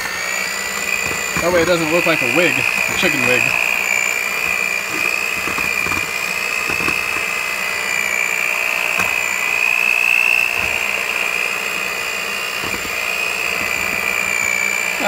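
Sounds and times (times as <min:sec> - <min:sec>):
electric hand mixer whining: 0:00.0 - 0:15.0.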